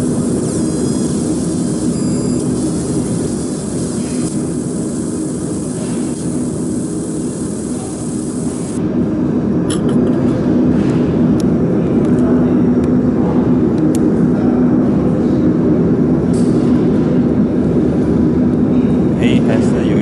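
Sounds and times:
laser marking machine humming: 0.0 - 8.8.

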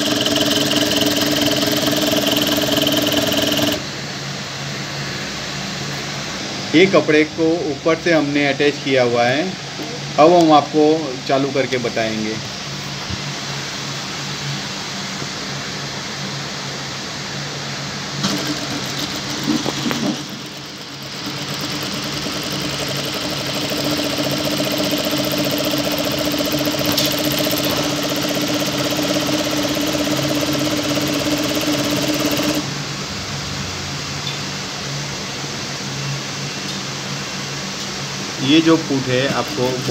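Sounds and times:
sewing machine stitching: 0.0 - 3.9, 18.2 - 32.7, 39.2 - 39.9
fan hum: 0.0 - 39.9.

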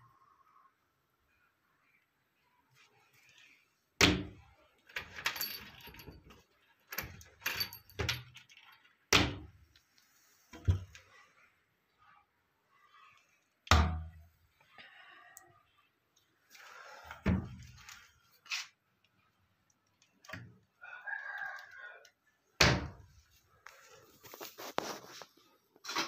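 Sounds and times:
keys jangling in lock: 4.9 - 8.8.

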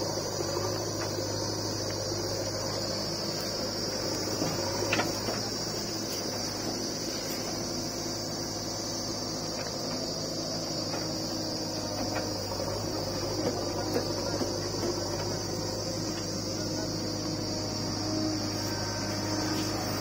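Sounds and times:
backhoe diesel engine running: 0.0 - 20.0
high-pitched insect drone: 0.0 - 20.0.

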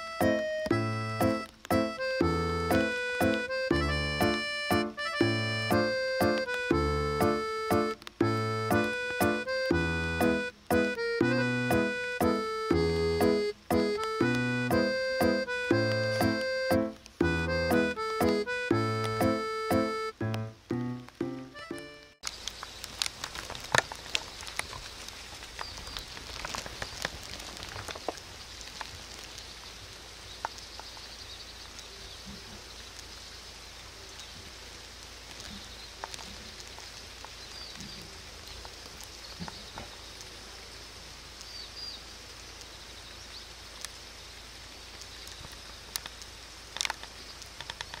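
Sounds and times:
steady hiss: 0.0 - 48.0
clicks and rustles: 22.2 - 29.3, 45.3 - 48.0.

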